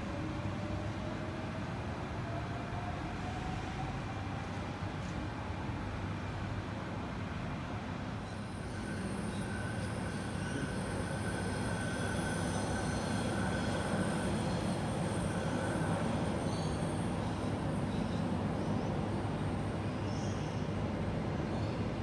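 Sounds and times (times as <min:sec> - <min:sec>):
train rumble and wheel noise: 0:00.0 - 0:22.0
thin high whine: 0:08.2 - 0:18.2.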